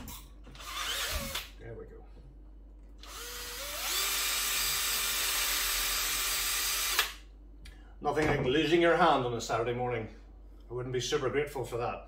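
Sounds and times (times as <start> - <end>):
cordless drill whining: 0.5 - 1.5, 3.0 - 7.2.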